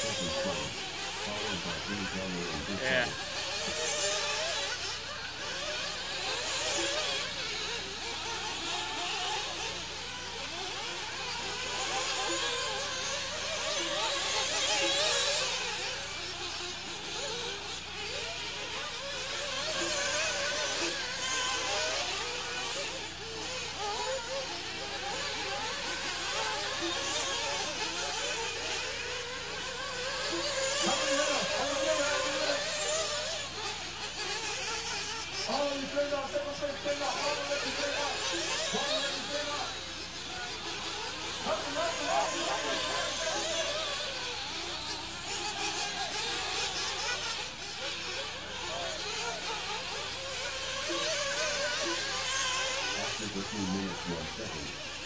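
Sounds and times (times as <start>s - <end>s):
rc buggy engines buzzing: 0.0s - 55.0s.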